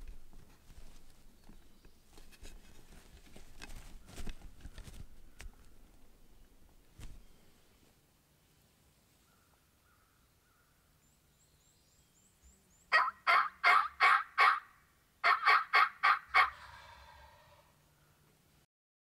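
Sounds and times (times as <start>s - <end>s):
wild turkey yelping: 12.9s - 17.7s.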